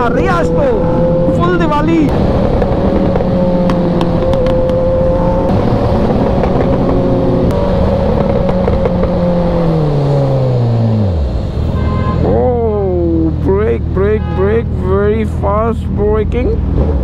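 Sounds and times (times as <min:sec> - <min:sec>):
superbike engine at high revs: 0:00.0 - 0:11.6, 0:13.6 - 0:17.0
sharp exhaust pops: 0:02.1 - 0:04.8, 0:05.5 - 0:09.3.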